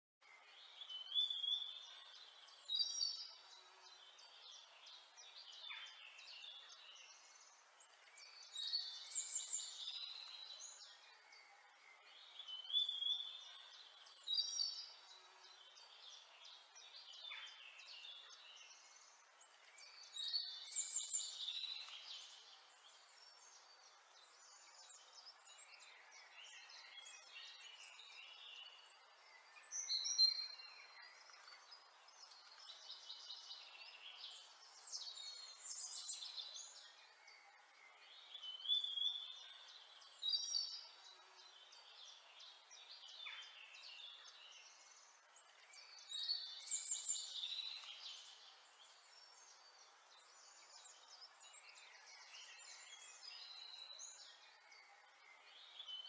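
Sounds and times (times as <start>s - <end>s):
birds chirping and singing: 0.2s - 56.0s
faint steady hiss: 0.2s - 56.0s.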